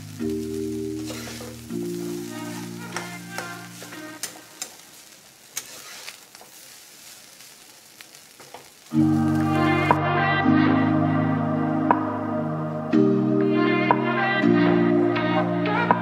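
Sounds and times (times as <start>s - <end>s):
background music: 0.0s - 5.0s, 8.9s - 16.0s
food sizzling: 0.0s - 16.0s
metal spatula scraping a pan: 1.0s - 7.2s.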